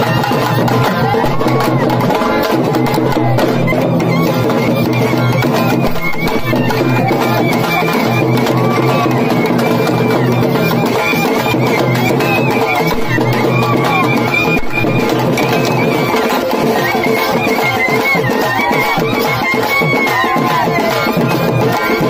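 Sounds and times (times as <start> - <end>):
frame drums beaten with sticks: 0.0 - 22.0
sliding melody: 0.9 - 7.8.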